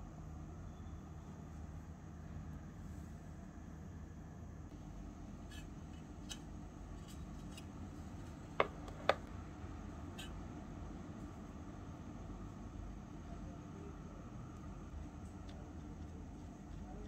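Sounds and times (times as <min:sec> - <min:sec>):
steady low hum: 0:00.0 - 0:17.0
small items tapping on wooden board: 0:08.6 - 0:09.3.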